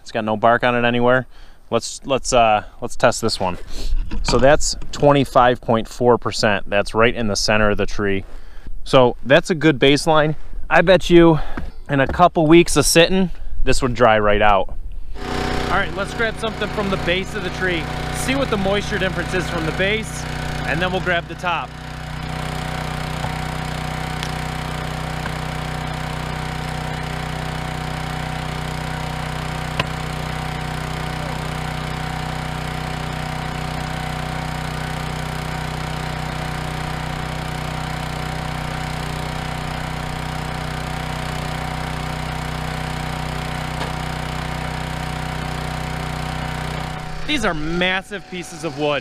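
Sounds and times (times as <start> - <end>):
small gasoline engine idling: 15.2 - 49.0.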